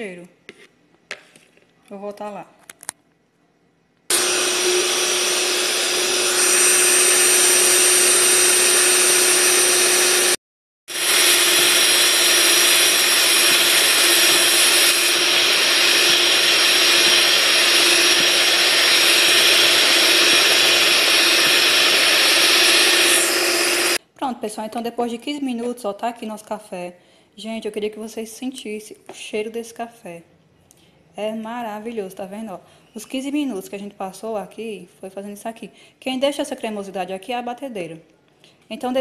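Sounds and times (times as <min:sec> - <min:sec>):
electric mixer motor whine: 0:04.1 - 0:24.0.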